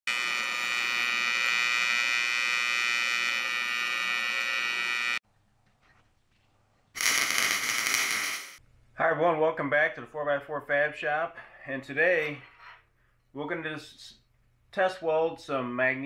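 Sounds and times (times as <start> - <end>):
welding arc buzzing: 0.0 - 5.2, 7.0 - 8.6
loud hiss: 7.0 - 8.6.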